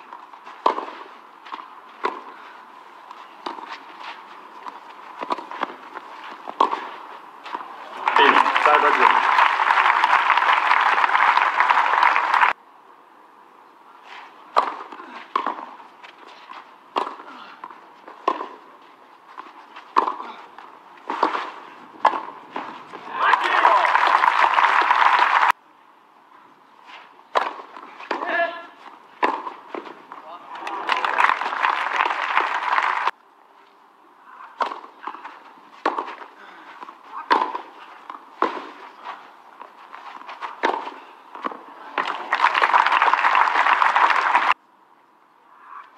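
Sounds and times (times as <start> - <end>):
tennis ball struck by racket: 0.1 - 2.3, 3.4 - 3.8, 4.6 - 7.7, 14.5 - 15.7, 16.9 - 17.3, 18.2 - 18.6, 19.9 - 20.3, 21.0 - 23.0, 27.3 - 28.4, 29.2 - 30.0, 34.6 - 38.8, 40.4 - 42.2
crowd applause: 7.8 - 12.6, 23.1 - 25.5, 30.5 - 33.1, 41.9 - 44.6.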